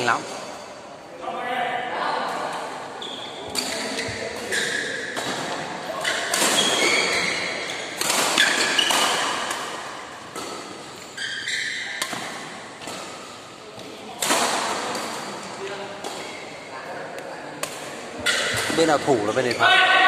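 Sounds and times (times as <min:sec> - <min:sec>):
shoes squeaking on court floor: 0:02.9 - 0:14.2, 0:16.0 - 0:16.7
racket striking shuttlecock: 0:07.9 - 0:10.9, 0:12.0 - 0:13.2.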